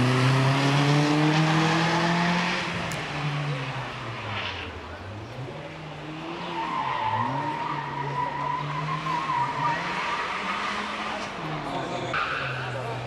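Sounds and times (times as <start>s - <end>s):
car engine revving hard: 0.0s - 3.9s.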